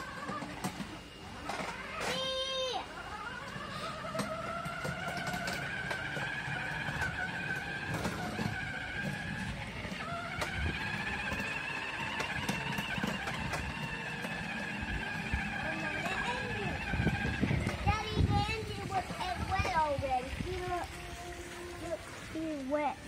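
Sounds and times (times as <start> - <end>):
electric toy motor whining: 0.0 - 23.0
plastic wheels on paving: 0.0 - 23.0.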